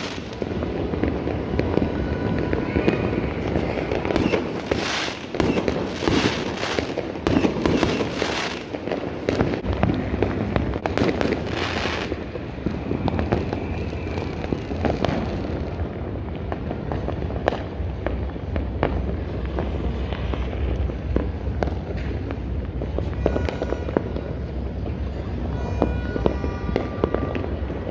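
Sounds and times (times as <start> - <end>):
fireworks crackling and banging: 0.0 - 27.9.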